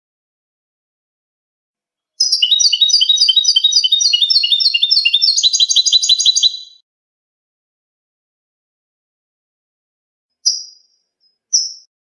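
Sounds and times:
goldfinch singing: 2.2 - 6.8.

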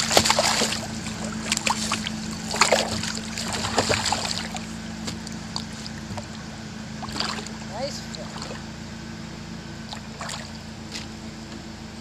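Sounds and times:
small splashes and drips: 0.0 - 6.3, 7.0 - 8.6, 9.9 - 11.1
water splashing and lapping: 0.0 - 8.8, 9.8 - 11.2
steady low hum: 0.0 - 12.0.

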